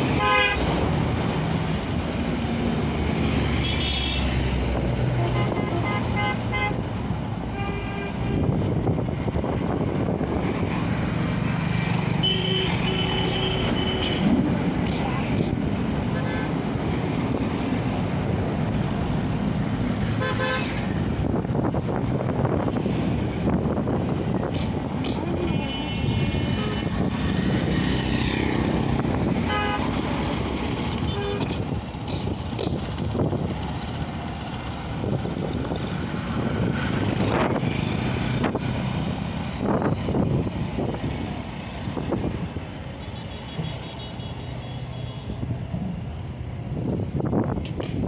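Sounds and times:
road traffic noise: 0.0s - 48.0s
vehicle horns honking: 0.1s - 0.7s, 3.6s - 4.3s, 5.2s - 6.8s, 7.5s - 8.6s, 12.2s - 14.4s, 20.2s - 20.8s, 25.3s - 27.0s, 29.4s - 30.0s, 31.0s - 31.7s, 43.0s - 45.4s.

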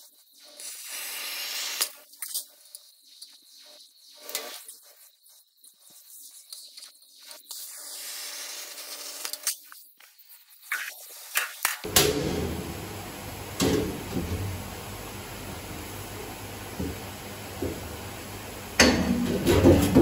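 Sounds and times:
steady machine noise with hum: 11.8s - 20.0s.

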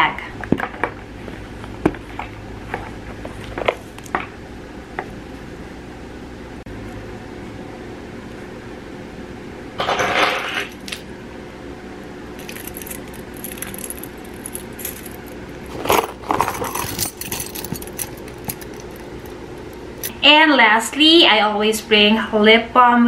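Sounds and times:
metal keys jangling: 12.4s - 20.1s.

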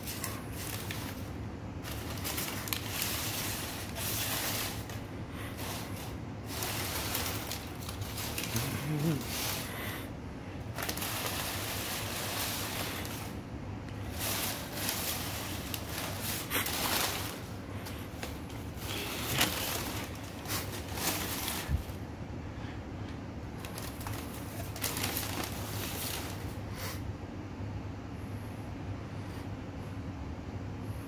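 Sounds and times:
paper crinkling and rustling: 0.0s - 10.0s, 10.6s - 22.0s, 23.6s - 26.6s
steady low hum: 0.0s - 31.0s.

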